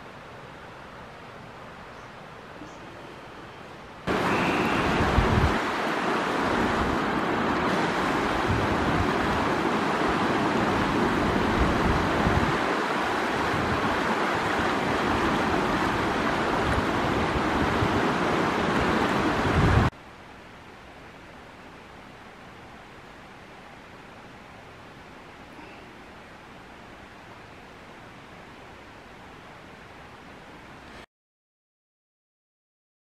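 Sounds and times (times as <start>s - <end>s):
river rushing over rocks: 0.0s - 30.9s
wind buffeting microphone: 4.1s - 19.9s.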